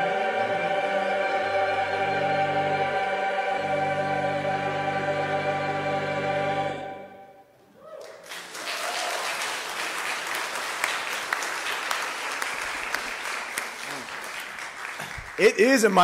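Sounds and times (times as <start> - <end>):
choir holding a chord: 0.0 - 7.5
congregation applauding: 7.8 - 16.0.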